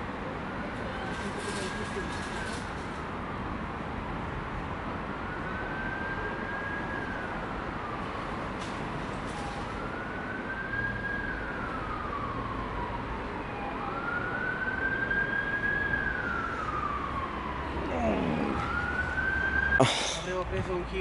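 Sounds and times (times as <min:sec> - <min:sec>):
low traffic hum: 0:00.0 - 0:21.0
emergency siren wailing: 0:04.9 - 0:19.8.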